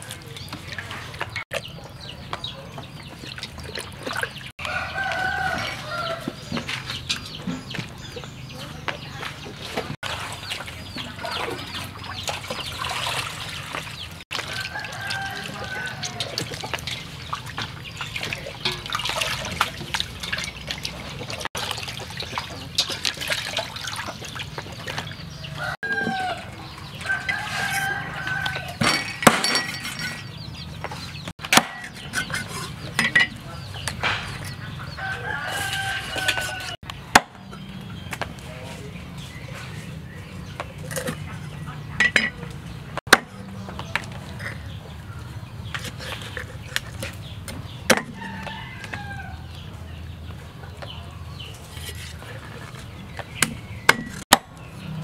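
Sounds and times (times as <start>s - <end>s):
rooster crowing: 4.6s - 6.4s, 14.5s - 16.4s, 25.5s - 28.8s, 35.0s - 36.8s, 48.1s - 49.4s.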